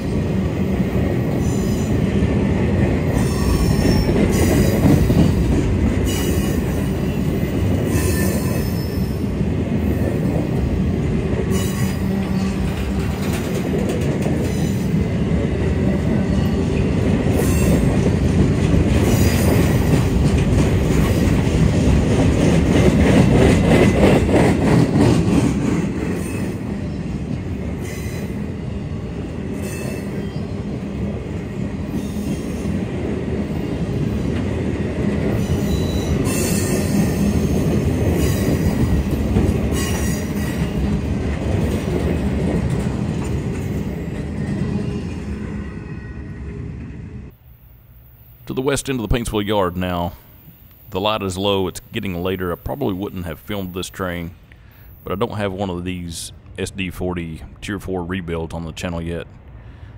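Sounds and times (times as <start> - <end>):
train cars rolling on steel wheels: 0.0 - 47.4
wheel squeal: 3.2 - 4.7, 35.4 - 37.5.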